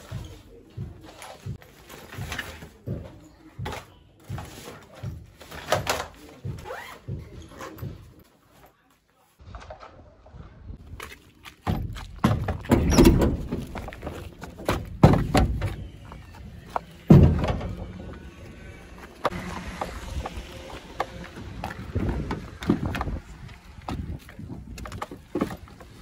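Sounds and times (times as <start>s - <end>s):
bag knocking and thudding: 11.6s - 16.2s.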